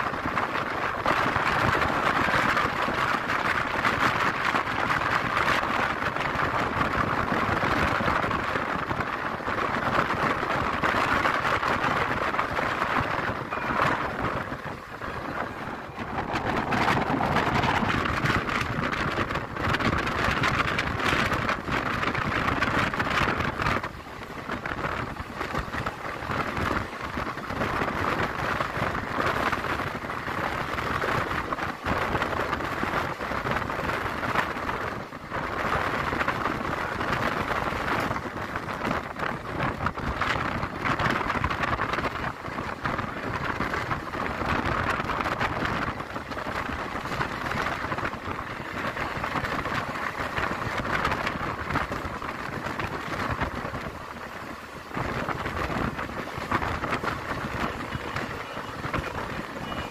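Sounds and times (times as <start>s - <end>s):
train wheels rattling on track: 0.0s - 59.9s
wind on microphone: 0.0s - 59.9s.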